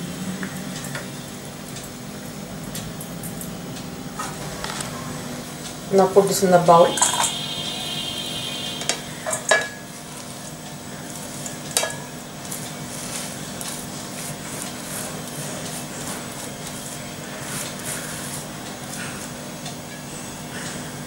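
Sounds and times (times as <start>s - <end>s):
paper rustling and crackling: 12.5s - 18.5s.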